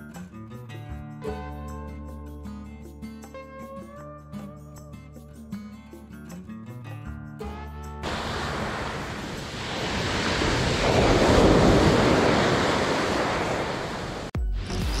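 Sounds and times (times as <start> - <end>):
sea waves surging onto beach: 8.0 - 14.4.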